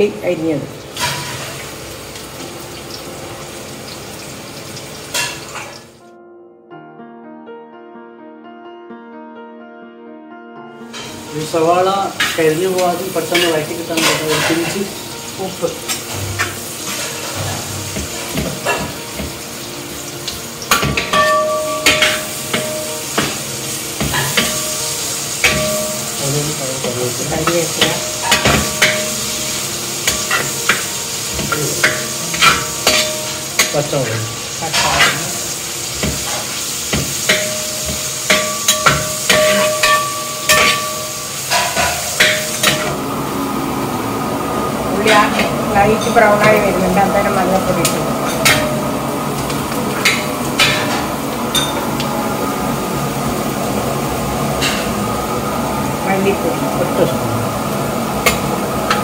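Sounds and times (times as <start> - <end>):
onions sizzling in hot oil: 0.0 - 6.0, 10.9 - 59.0
pan ringing: 10.9 - 59.0
spatula scraping metal pan: 13.3 - 14.9.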